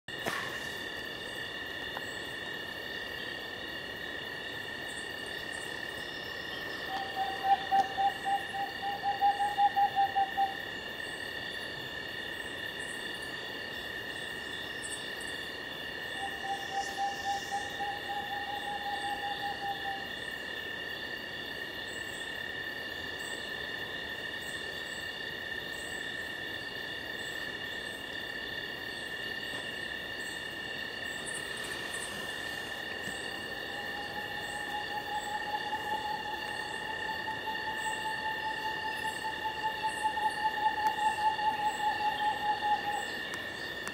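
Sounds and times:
owl trilling hoots: 0:06.6 - 0:10.6, 0:16.2 - 0:20.1, 0:31.6 - 0:43.2
high-pitched drone: 0:33.1 - 0:43.2.

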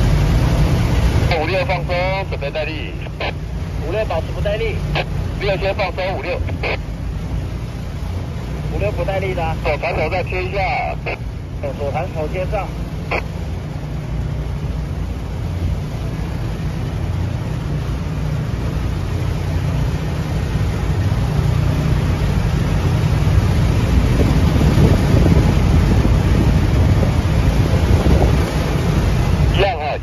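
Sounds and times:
small boat engine rumble: 0:00.0 - 0:30.0
wind buffeting microphone: 0:22.1 - 0:29.6.

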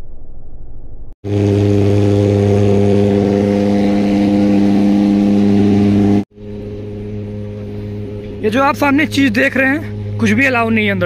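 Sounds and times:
loud low machine hum: 0:01.2 - 0:11.0.

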